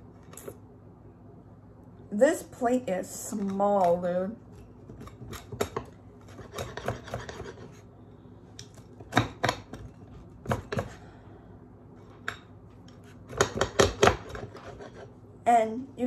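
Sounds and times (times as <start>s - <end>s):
pizza cutter scraping crust: 4.9s - 7.9s, 12.9s - 15.2s.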